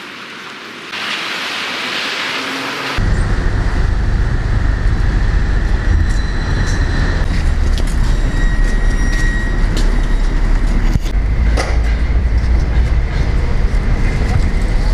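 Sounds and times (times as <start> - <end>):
rain hiss on wet pavement: 0.0 - 3.0
tram rumble and whine: 1.8 - 14.9.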